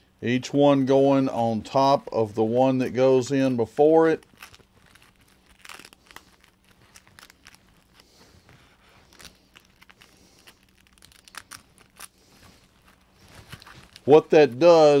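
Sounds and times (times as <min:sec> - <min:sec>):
sanding disc crinkling: 0:03.3 - 0:15.0.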